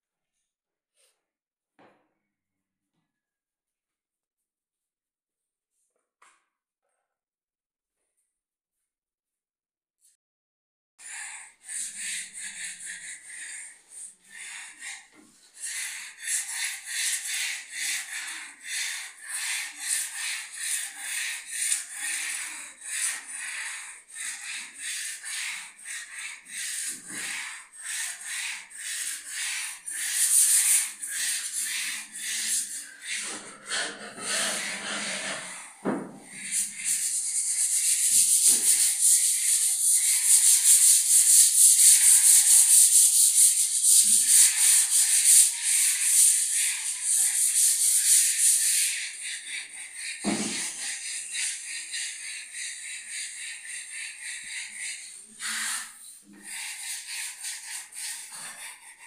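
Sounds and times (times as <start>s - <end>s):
sanding block rubbing on board: 11.0s - 59.0s.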